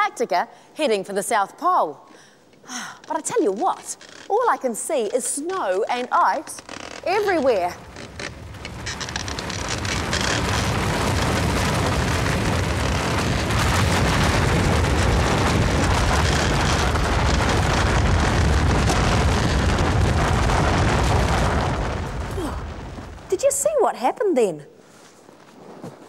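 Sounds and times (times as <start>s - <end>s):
snow and ice collapsing: 6.4s - 23.5s.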